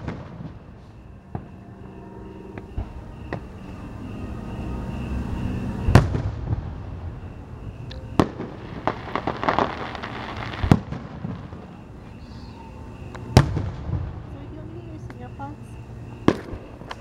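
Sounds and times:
firework booms: 0.0 - 1.6, 5.8 - 7.3, 8.1 - 11.8, 13.2 - 14.4, 16.2 - 16.8
firework crackling: 7.9 - 11.9.

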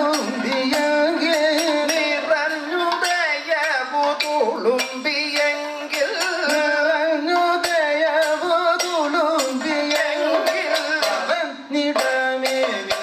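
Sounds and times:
metallic percussion strokes: 0.0 - 13.0.

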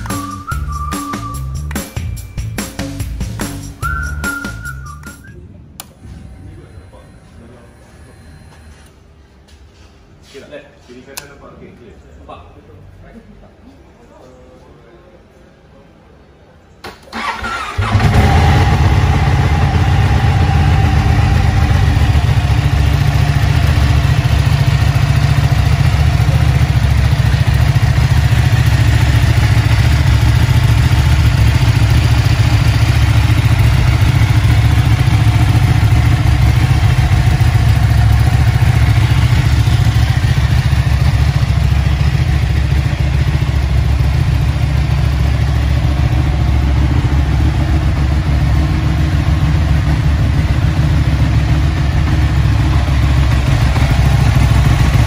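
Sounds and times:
motorcycle engine starting and idling: 16.8 - 55.0.

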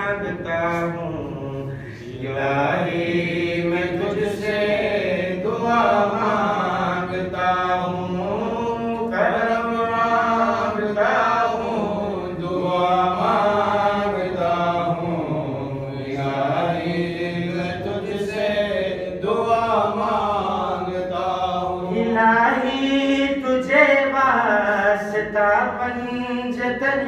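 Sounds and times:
man chanting a lament: 0.0 - 27.0.

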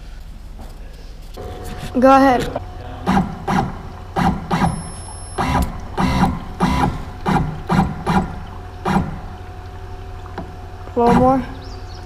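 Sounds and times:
stepper motor whirring: 1.4 - 9.4.

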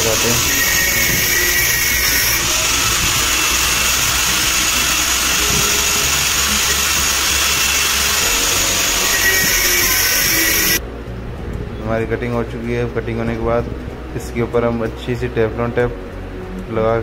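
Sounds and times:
angle grinder cutting metal: 0.0 - 10.8.

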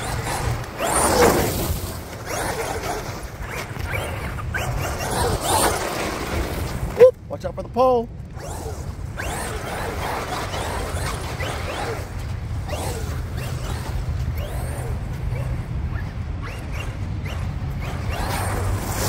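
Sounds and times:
electric motor whining: 8.3 - 19.0.

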